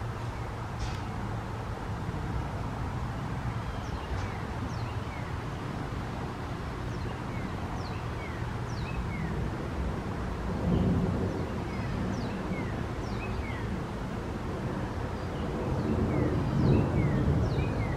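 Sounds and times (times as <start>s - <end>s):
bird chirping: 3.5s - 5.8s, 6.9s - 9.4s, 10.7s - 13.8s, 15.2s - 17.9s.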